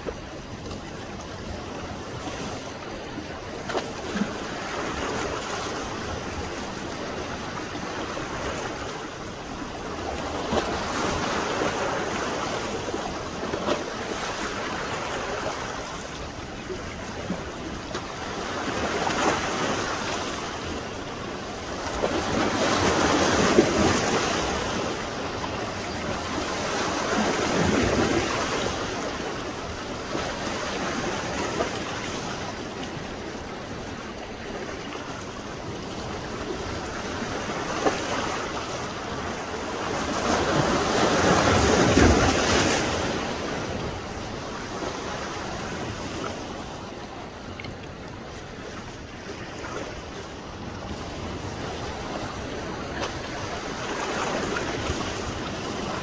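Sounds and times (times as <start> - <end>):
waves breaking on beach: 0.0 - 56.0.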